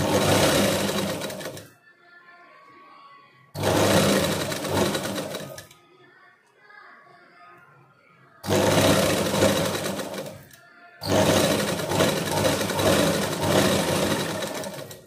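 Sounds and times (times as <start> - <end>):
sewing machine running: 0.0 - 1.7, 3.6 - 5.7, 8.4 - 15.0.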